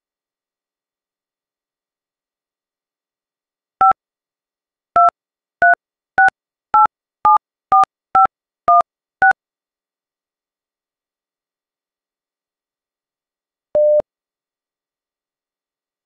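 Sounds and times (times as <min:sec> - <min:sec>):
touch-tone keypad beeps: 0:13.8 - 0:14.0.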